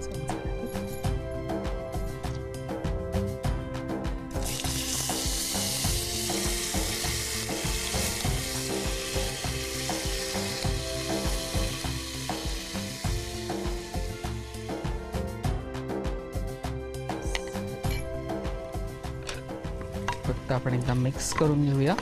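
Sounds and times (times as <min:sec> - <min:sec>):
background music with a beat: 0:00.0 - 0:22.0
rice sizzling in hot oil: 0:04.3 - 0:15.0.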